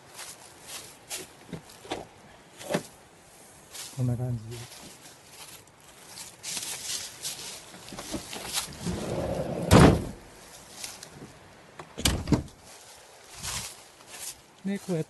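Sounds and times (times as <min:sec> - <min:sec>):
car door thump: 0:09.6 - 0:10.2.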